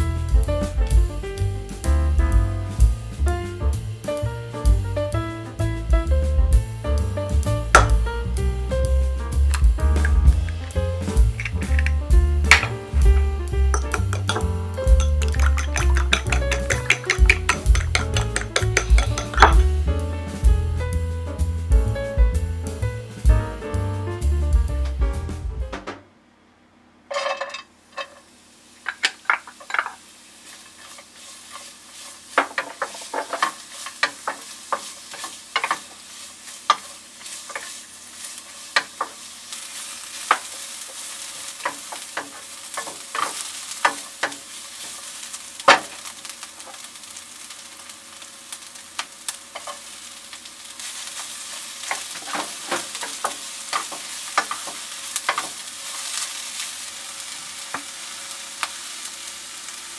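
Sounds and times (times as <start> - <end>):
vegetables sizzling in a pan: 0.0 - 21.7, 27.1 - 59.9
spatula scraping a pan: 13.8 - 19.6, 29.0 - 45.1, 50.8 - 56.4.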